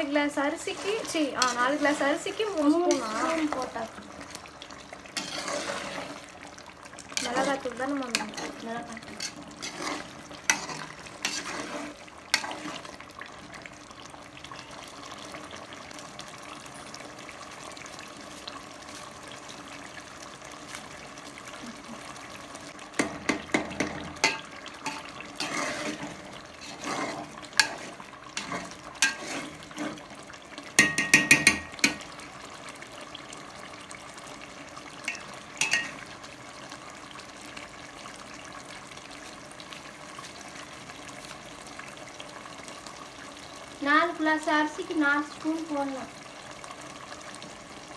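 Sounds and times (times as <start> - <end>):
food sizzling: 0.0 - 47.9
spoon scraping and clinking on pot: 5.2 - 6.0, 7.2 - 12.7, 23.3 - 30.0, 30.8 - 32.1, 35.1 - 36.0.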